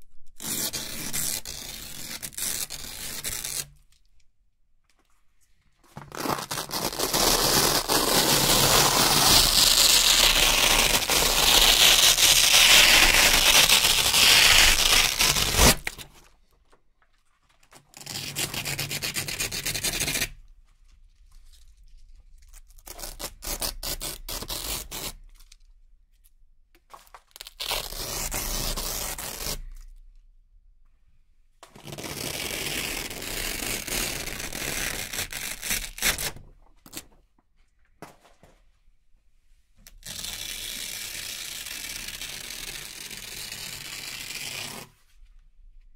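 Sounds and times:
velcro peeling apart: 6.1 - 16.3, 31.8 - 37.1, 39.8 - 44.9.

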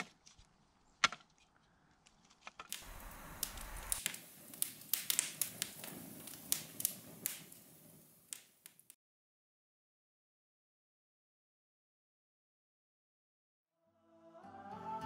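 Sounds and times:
campfire crackling and popping: 2.1 - 9.0
hiss of flame: 2.7 - 9.0.

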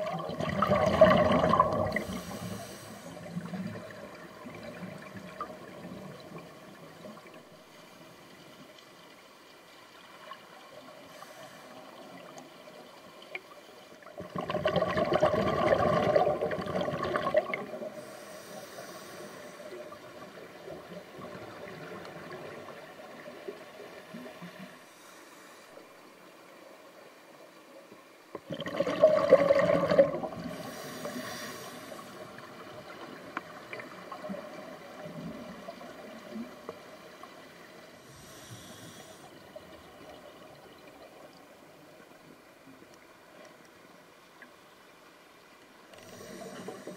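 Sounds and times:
faint underwater hiss: 0.0 - 46.9
diver exhalation bubbling: 28.5 - 30.5.

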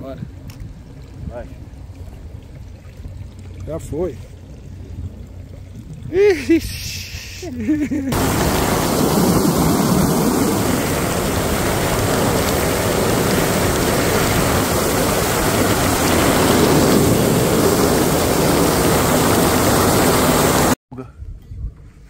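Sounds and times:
outboard engine: 0.3 - 20.8
water rushing: 1.2 - 20.8
wind noise: 4.8 - 22.0.

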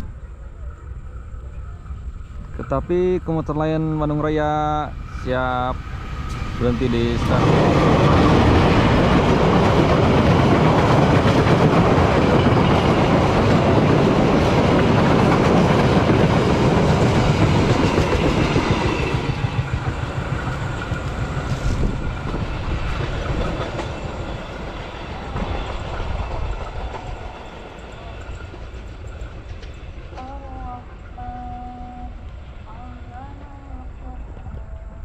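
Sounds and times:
train wheels clattering on rails: 5.8 - 31.2.

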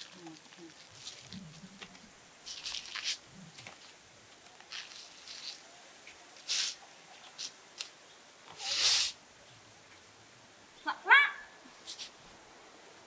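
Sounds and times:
fruit rustling in plastic basket: 0.0 - 5.6.

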